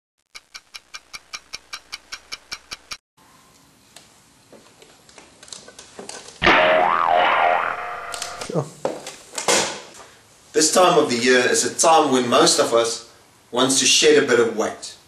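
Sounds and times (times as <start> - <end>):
fast clock-like ticking: 0.3 - 3.0.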